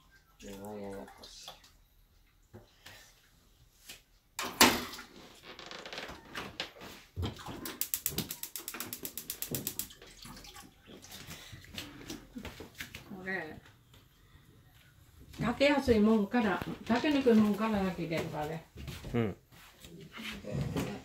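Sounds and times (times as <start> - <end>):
water splashing and running: 7.2 - 13.1
fast even tapping: 7.7 - 9.9.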